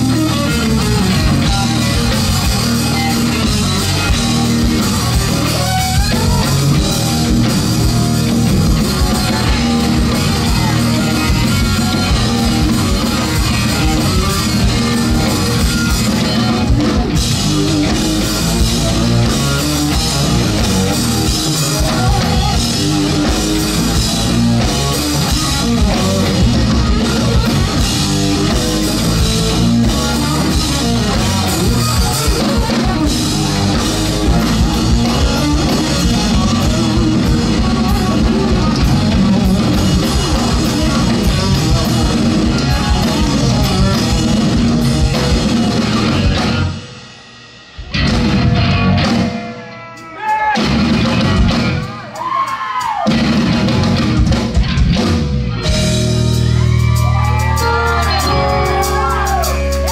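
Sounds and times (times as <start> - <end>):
bass guitar: 0.0 - 59.9
drum kit: 0.0 - 59.9
electric guitar: 0.0 - 59.9.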